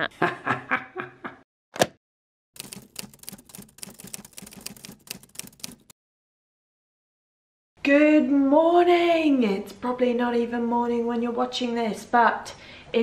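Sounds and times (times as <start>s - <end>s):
typewriter keys clacking: 2.6s - 5.9s.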